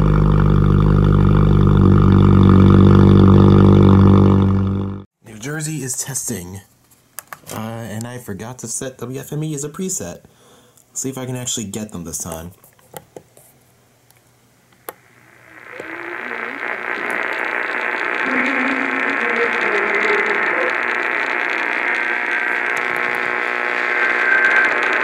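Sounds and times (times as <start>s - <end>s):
radio static hiss: 14.8s - 25.0s.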